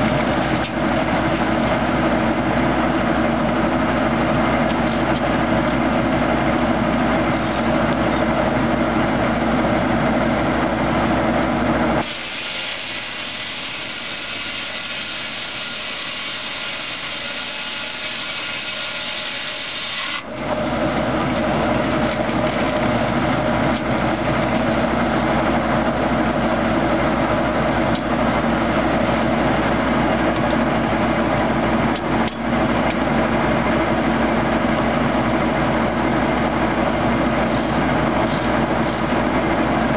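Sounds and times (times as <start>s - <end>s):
sawmill machine hum: 0.0s - 39.9s
circular saw hissing through wood: 12.0s - 20.3s.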